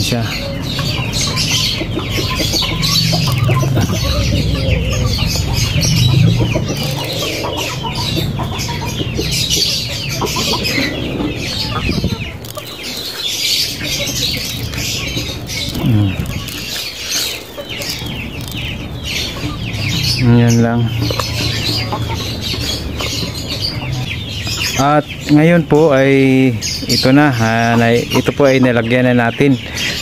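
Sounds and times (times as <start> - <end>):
chickens clucking: 0.0 - 30.0
lower falling call: 2.2 - 12.4.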